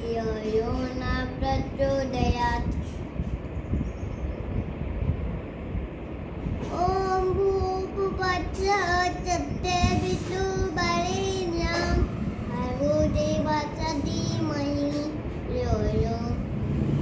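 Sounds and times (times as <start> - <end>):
boy chanting a mantra: 0.0 - 3.0, 6.6 - 16.5
low background rumble: 0.0 - 17.0.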